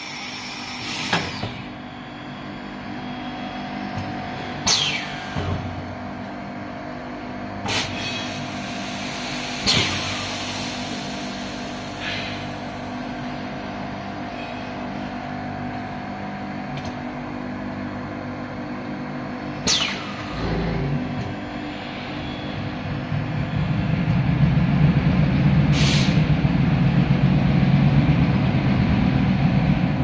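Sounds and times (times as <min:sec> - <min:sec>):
machine humming: 0:00.0 - 0:30.0
sharp air bursts: 0:07.7 - 0:12.9, 0:25.7 - 0:26.3
low rumble: 0:20.3 - 0:30.0.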